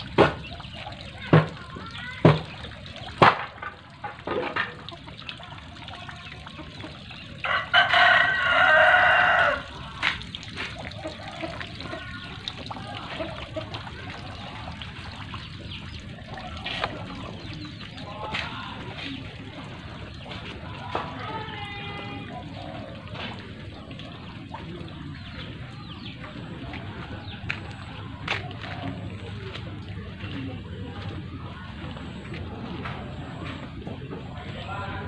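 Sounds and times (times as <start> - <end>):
rooster crowing: 7.4 - 9.8.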